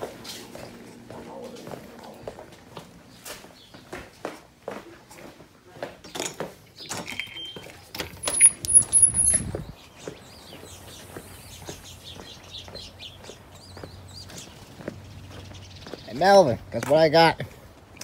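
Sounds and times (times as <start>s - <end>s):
birds chirping: 0.0s - 4.3s, 6.0s - 18.0s
footsteps: 0.0s - 6.7s.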